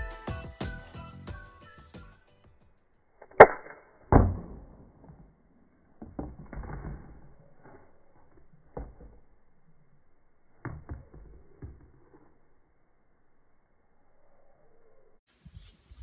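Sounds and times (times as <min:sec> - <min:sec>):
toy launcher shots: 0:03.2 - 0:05.0.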